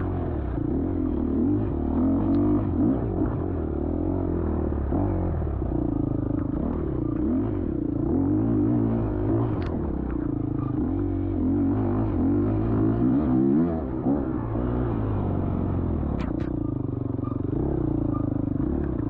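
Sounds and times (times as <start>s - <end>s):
dirt bike engine revving: 6.6s - 16.4s.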